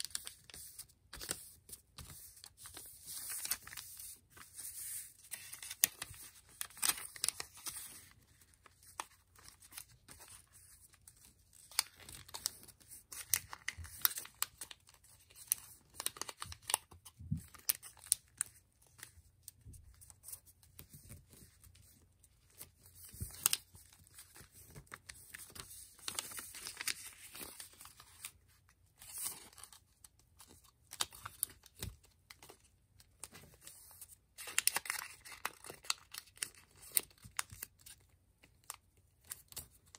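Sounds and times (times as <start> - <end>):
paper rustling and crinkling: 0.0 - 39.9.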